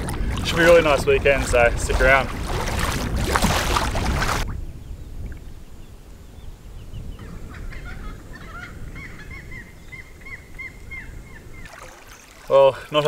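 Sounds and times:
rushing water: 0:00.0 - 0:04.6, 0:11.6 - 0:13.0
birds calling: 0:00.0 - 0:13.0
wind: 0:00.0 - 0:13.0.

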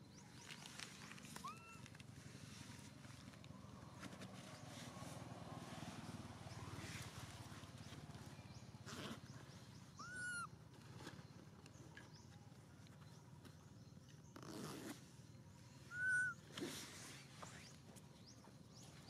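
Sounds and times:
macaque coo calls: 0:01.4 - 0:01.8, 0:10.0 - 0:10.5, 0:15.9 - 0:16.4.

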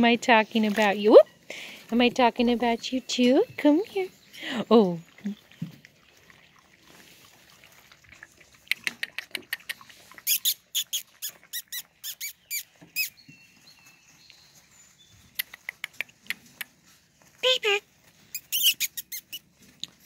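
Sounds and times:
puppies squeaking and whining: 0:08.8 - 0:17.3, 0:18.0 - 0:20.0.

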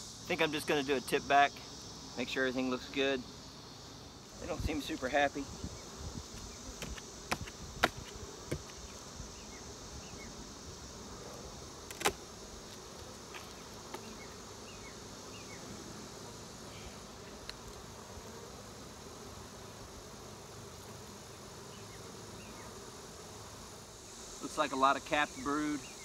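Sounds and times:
honeybees buzzing: 0:00.0 - 0:26.0
wooden hive boxes knocking: 0:06.3 - 0:08.9.

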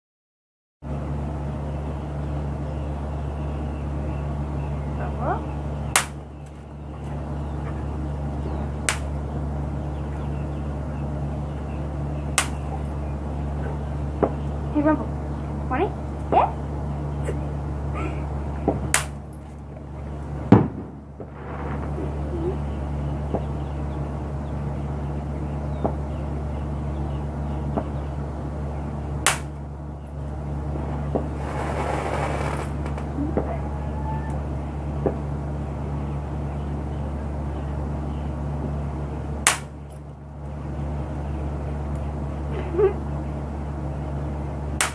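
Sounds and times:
steady low hum: 0:00.8 - 0:44.9
firecracker crack: 0:06.0 - 0:06.2, 0:18.7 - 0:19.2, 0:20.5 - 0:22.3, 0:29.2 - 0:29.5, 0:31.1 - 0:33.5, 0:39.4 - 0:39.8
firecracker pops: 0:18.7 - 0:19.2, 0:20.5 - 0:22.0.

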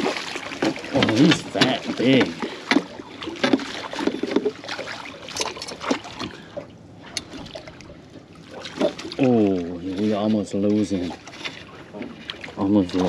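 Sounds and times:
water splashing and trickling: 0:00.0 - 0:13.0.

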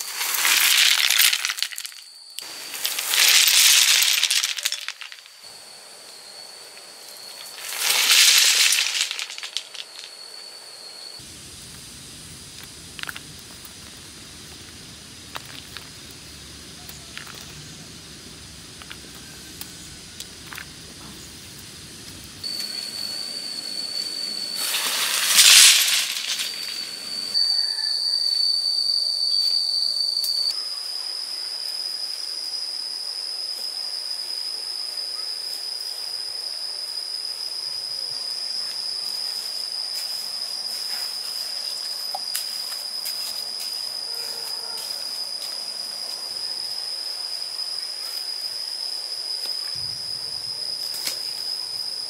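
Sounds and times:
insects droning: 0:00.0 - 0:52.0
loud hissing burst: 0:02.4 - 0:05.1, 0:07.5 - 0:10.1, 0:11.2 - 0:27.4.

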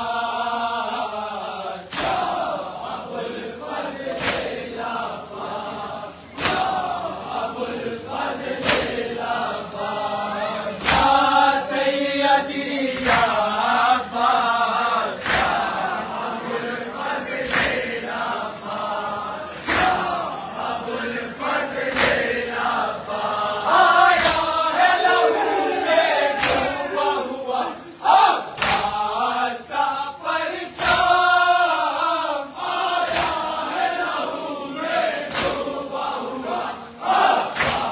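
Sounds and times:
crowd of men chanting: 0:00.0 - 0:37.9
collective chest-beating slaps: 0:01.9 - 0:02.4, 0:03.8 - 0:04.5, 0:06.3 - 0:06.8, 0:08.6 - 0:09.0, 0:10.8 - 0:11.3, 0:13.0 - 0:13.4, 0:15.2 - 0:15.6, 0:17.4 - 0:17.8, 0:19.6 - 0:20.0, 0:24.1 - 0:24.5, 0:26.4 - 0:26.8, 0:28.6 - 0:29.0, 0:33.0 - 0:33.5, 0:35.3 - 0:35.6, 0:37.5 - 0:37.9.

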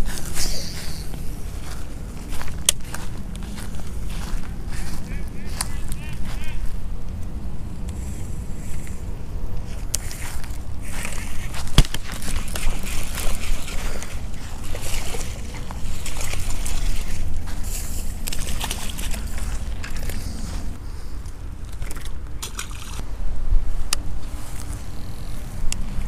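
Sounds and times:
wind rumbling on microphone: 0:00.0 - 0:26.0
fishing reel rustling and clicking: 0:07.8 - 0:23.0.

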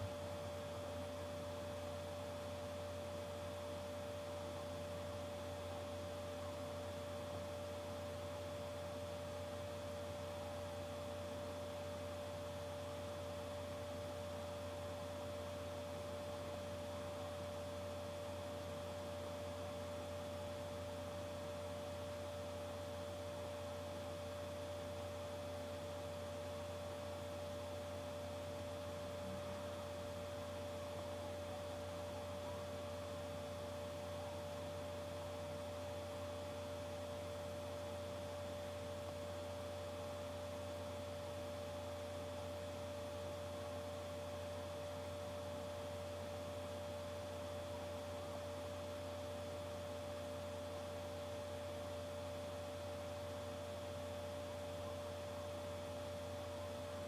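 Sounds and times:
electrical hum: 0:00.0 - 0:57.0.

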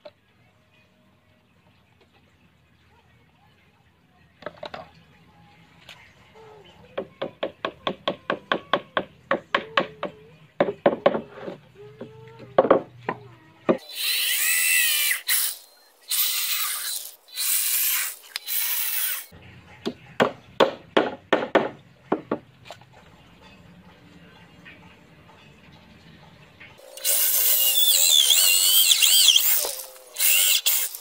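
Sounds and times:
electric drill boring into wood: 0:13.8 - 0:19.3, 0:26.9 - 0:31.0.

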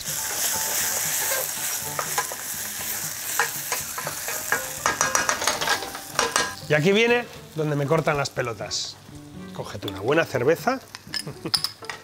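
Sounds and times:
vegetables sizzling in a pan: 0:00.0 - 0:11.5
spatula scraping and knocking pan: 0:01.1 - 0:06.6.

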